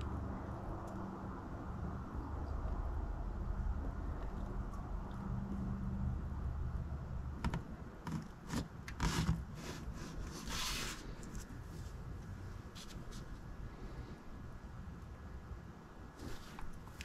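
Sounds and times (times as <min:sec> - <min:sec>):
plastic jug clicks and scrapes: 0:07.5 - 0:10.4.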